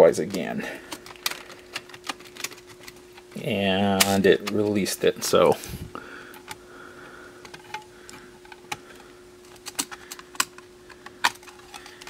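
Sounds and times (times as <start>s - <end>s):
faint steady hum: 0.0s - 12.0s
cd changer parts clicking: 0.2s - 5.5s, 7.4s - 12.0s.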